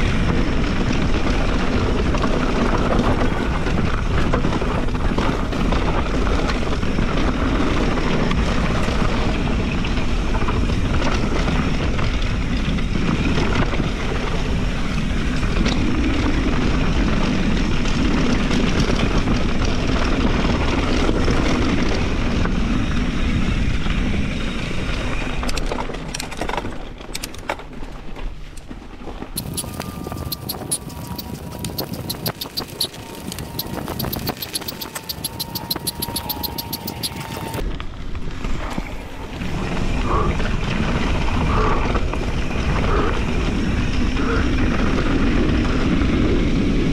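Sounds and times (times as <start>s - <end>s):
wind rushing over microphone: 0.0s - 27.0s, 29.1s - 46.9s
sharp clicks and knocks: 29.4s - 37.6s.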